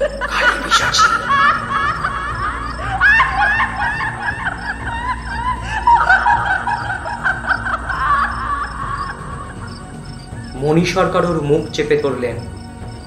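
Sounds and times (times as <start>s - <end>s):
woman cackling: 0.0s - 9.8s
low droning background music: 0.0s - 13.0s.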